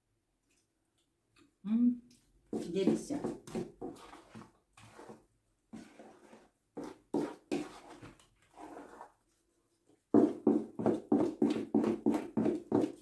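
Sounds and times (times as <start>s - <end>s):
wooden spoon beating batter in bowl: 2.5s - 13.0s.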